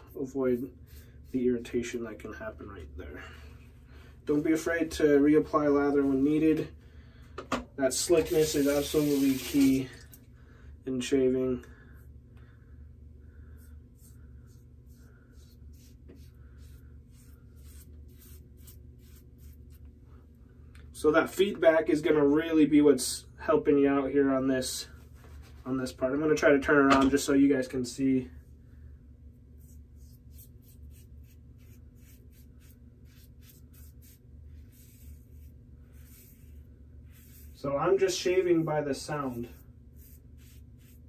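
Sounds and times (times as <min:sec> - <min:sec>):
razor scraping stubble: 0:14.0 - 0:19.9, 0:29.6 - 0:41.0.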